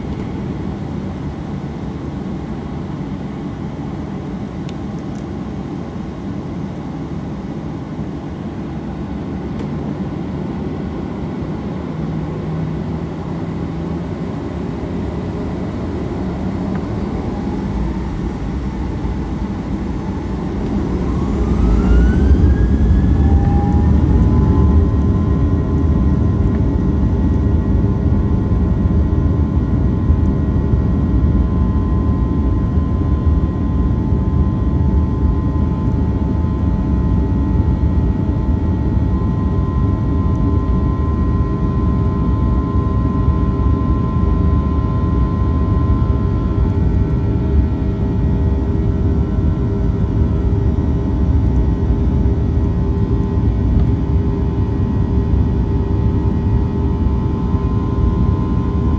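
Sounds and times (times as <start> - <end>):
jet engines spooling up: 13.6 - 27.5.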